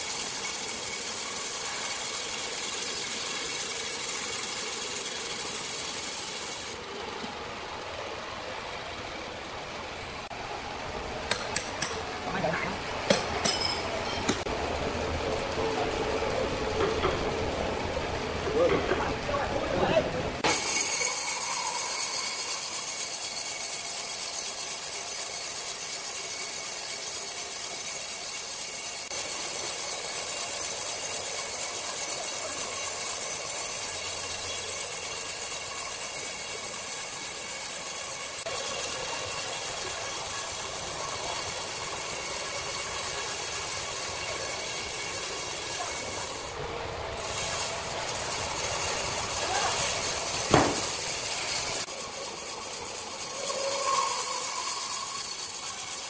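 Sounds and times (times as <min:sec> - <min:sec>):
band saw cutting log: 0:00.0 - 0:07.0, 0:20.4 - 0:56.0.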